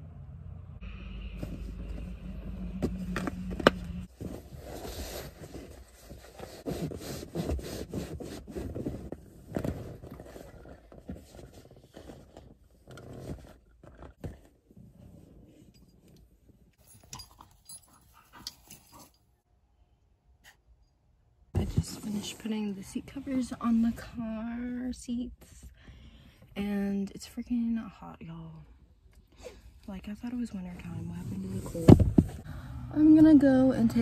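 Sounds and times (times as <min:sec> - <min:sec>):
seat covers rustling and scraping: 0:01.2 - 0:16.8.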